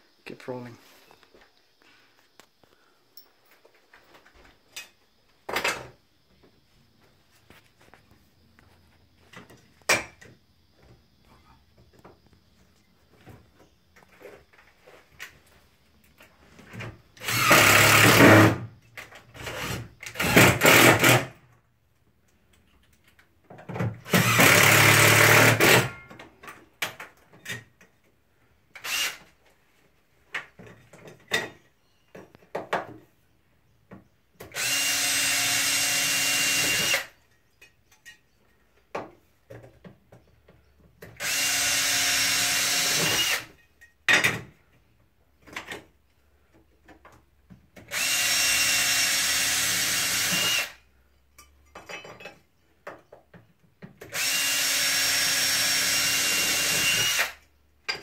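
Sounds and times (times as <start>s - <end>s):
cordless drill running: 17.2s - 18.6s, 19.4s - 21.3s, 24.1s - 25.9s, 28.8s - 29.2s, 34.5s - 37.1s, 41.2s - 43.5s, 47.9s - 50.8s, 54.1s - 57.4s.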